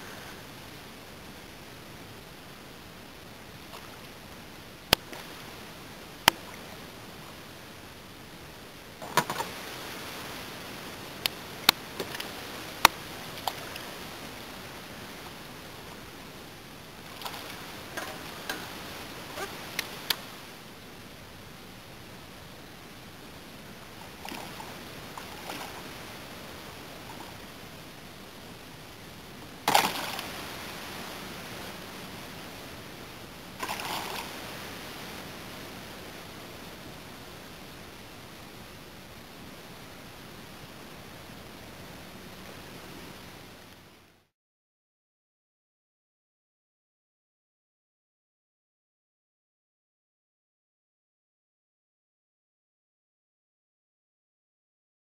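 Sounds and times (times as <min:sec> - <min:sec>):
steady hiss: 0:00.0 - 0:44.3
fish splashing in water: 0:29.7 - 0:31.1, 0:33.6 - 0:34.6.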